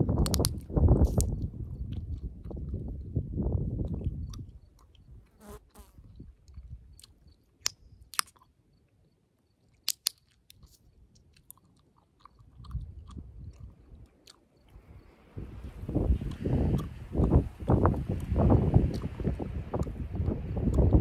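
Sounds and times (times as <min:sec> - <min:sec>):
gum pops: 0:00.1 - 0:02.8, 0:06.9 - 0:08.5, 0:09.8 - 0:14.4, 0:16.2 - 0:21.0
gum chewing wet clicks: 0:00.1 - 0:03.0, 0:03.8 - 0:05.3, 0:06.1 - 0:09.0, 0:09.6 - 0:14.8, 0:16.0 - 0:21.0.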